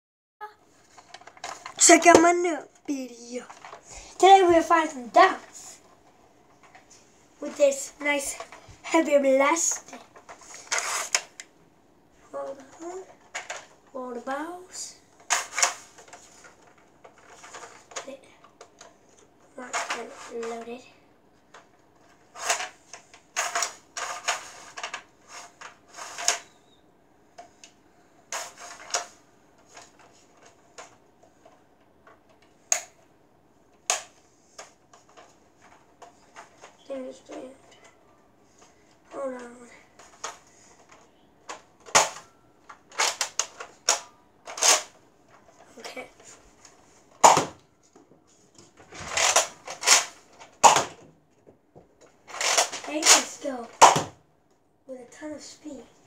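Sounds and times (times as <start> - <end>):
soft plastic rattling: 0.6 - 8.8, 12.4 - 14.0, 15.1 - 33.0, 33.6 - 47.2
plastic toy blaster clicks and rattles: 9.6 - 11.4, 15.2 - 18.9, 19.6 - 20.7, 22.3 - 26.5, 28.3 - 32.9, 39.1 - 45.0, 49.1 - 51.0, 52.3 - 54.1
sharp plastic clacks: 27.4 - 33.0, 38.6 - 47.6, 48.6 - 51.1, 52.0 - 54.2
toy blaster plastic snap: 47.2 - 47.5, 49.2 - 51.0, 52.3 - 54.1.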